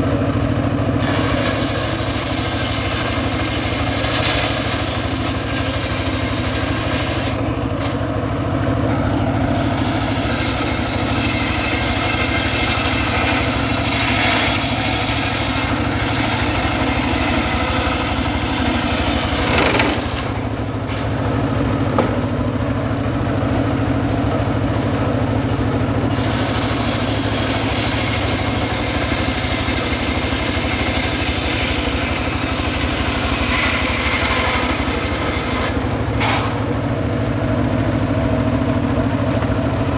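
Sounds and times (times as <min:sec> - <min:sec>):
engine droning low: 0:00.0 - 0:39.9
saw blade cutting wood hiss: 0:01.0 - 0:08.0, 0:09.5 - 0:20.4, 0:26.1 - 0:36.5.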